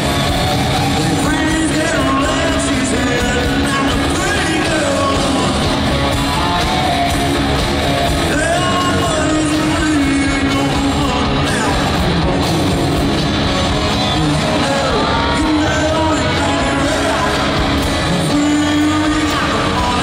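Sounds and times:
live country rock band: 0.0s - 20.0s
man singing into microphone: 1.0s - 6.0s, 8.2s - 13.3s, 14.0s - 20.0s.

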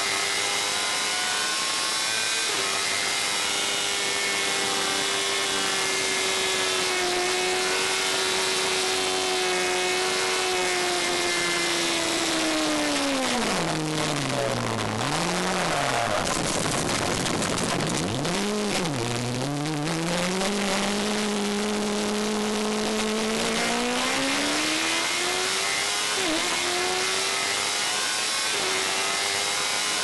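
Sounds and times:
racing car engine at high revs: 0.0s - 30.0s
wind noise: 14.0s - 18.3s.

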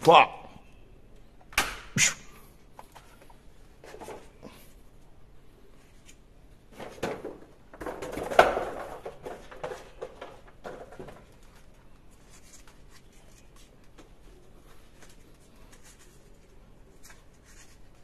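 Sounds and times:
plastic clattering and rustling: 2.8s - 4.4s, 6.7s - 13.0s.

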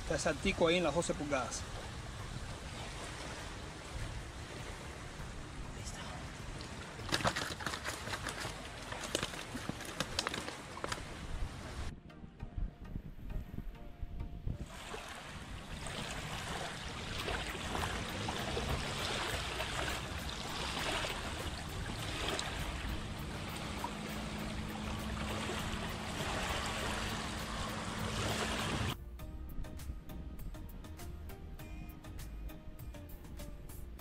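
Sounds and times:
waves lapping on shore: 0.0s - 11.9s, 14.6s - 29.0s.

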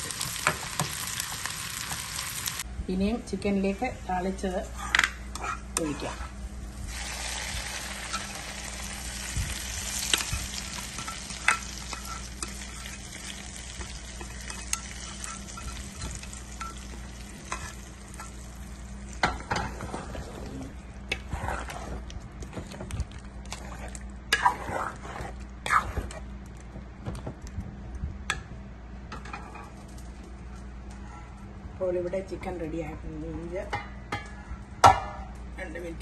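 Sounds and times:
hot oil sizzling: 0.0s - 2.6s, 6.7s - 19.6s.

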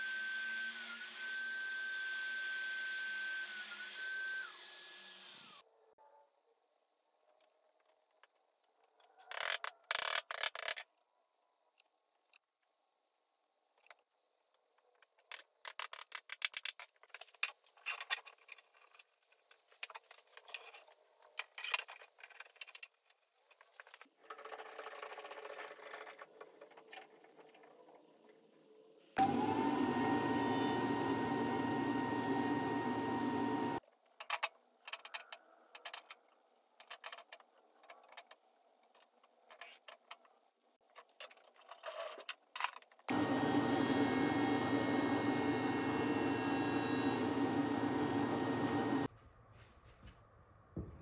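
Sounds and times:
table saw running: 29.2s - 33.8s, 43.1s - 49.1s.

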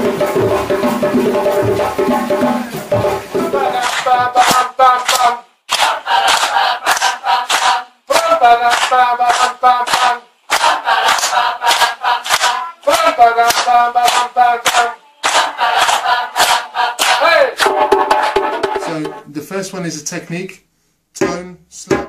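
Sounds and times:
group chanting in unison: 2.6s - 17.8s
hand claps: 2.6s - 19.0s.

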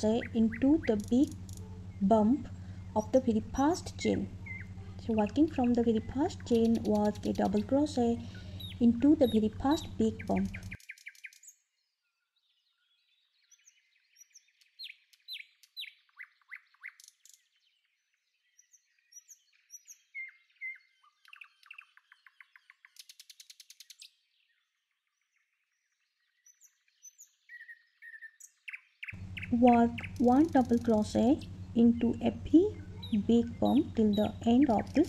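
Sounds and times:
bird rattling trill: 0.0s - 2.0s, 2.7s - 11.5s, 29.1s - 35.0s
small birds chirping: 0.0s - 35.0s.

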